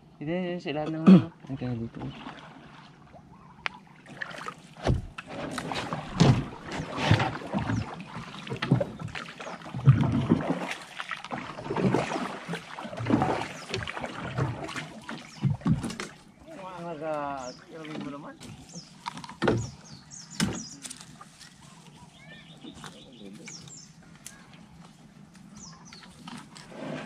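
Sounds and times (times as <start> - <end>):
paddle strokes splashing in water: 1.8 - 24.2, 25.0 - 27.0.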